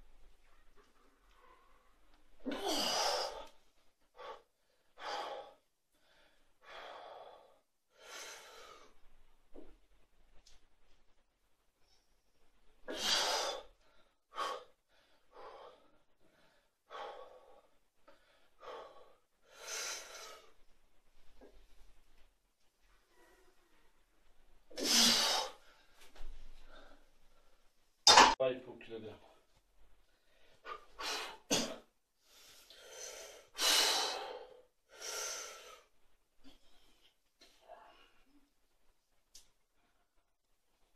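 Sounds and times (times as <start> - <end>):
man breathing forcefully: 32.3 - 35.9.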